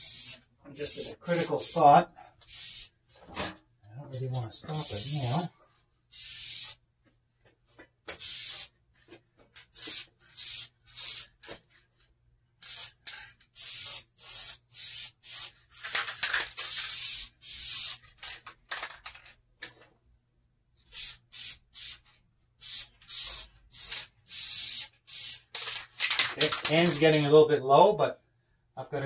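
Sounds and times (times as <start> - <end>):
aerosol can spraying: 0.0 - 2.9, 4.6 - 5.5, 6.1 - 6.8, 8.1 - 8.7, 9.8 - 11.4, 12.7 - 13.0, 13.6 - 15.6, 16.5 - 18.0, 20.9 - 22.0, 22.6 - 25.8.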